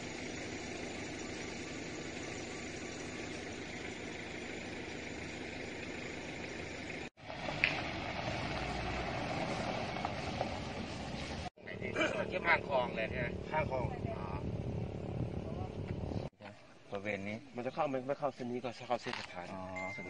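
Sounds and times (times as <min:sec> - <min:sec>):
truck engine idling: 0:00.0 - 0:11.8
outdoor engine-like rumble and hiss: 0:00.0 - 0:20.0.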